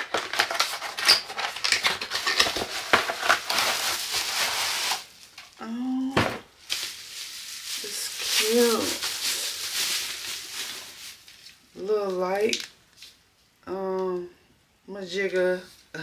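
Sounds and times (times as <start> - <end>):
bubble wrap crackling and rustling: 0.0 - 13.2
woman humming: 5.6 - 6.2.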